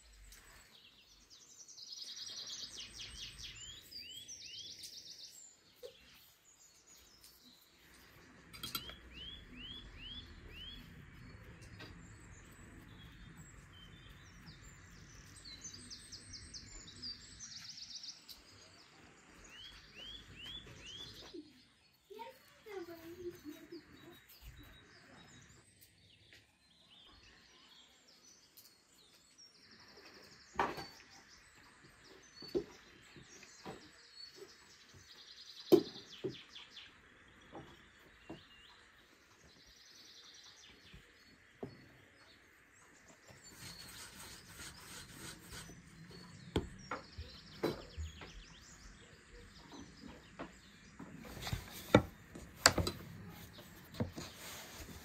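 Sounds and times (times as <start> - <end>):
small birds chirping: 0.0 - 55.0
pastry handling on wooden table: 43.2 - 47.8, 51.0 - 55.0
sharp taps and knocks: 50.0 - 55.0.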